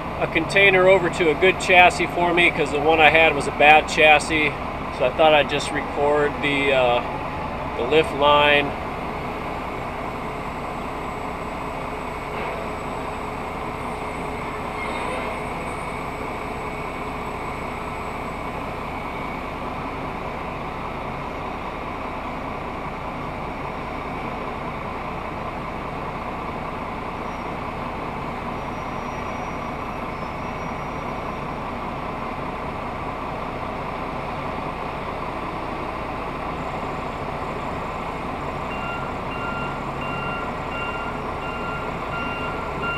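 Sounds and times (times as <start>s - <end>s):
truck engine idling: 0.0s - 42.9s
backup alarm beeping: 38.6s - 42.9s.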